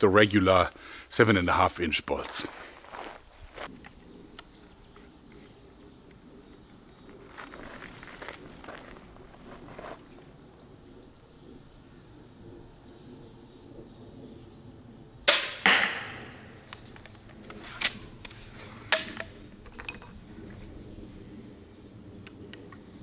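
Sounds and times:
bolt striking target: 15.3s - 16.5s.

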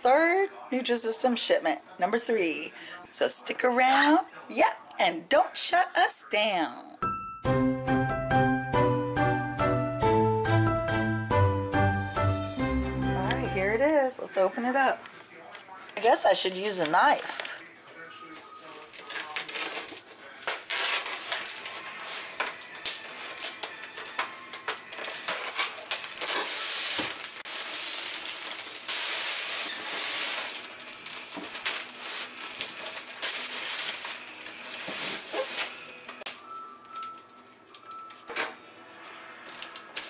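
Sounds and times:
plastic crinkling: 16.5s - 38.4s, 39.4s - 40.0s
plastic wrap tearing: 18.7s - 36.4s, 39.4s - 40.0s.

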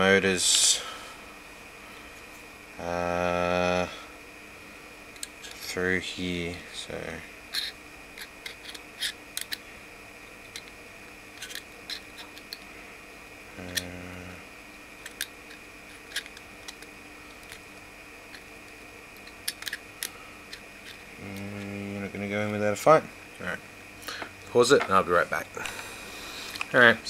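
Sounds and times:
person humming: 2.8s - 4.1s, 13.5s - 14.5s, 21.2s - 22.1s
plastic parts clicking: 7.6s - 9.6s, 11.4s - 12.6s, 15.0s - 15.3s, 19.2s - 21.5s.

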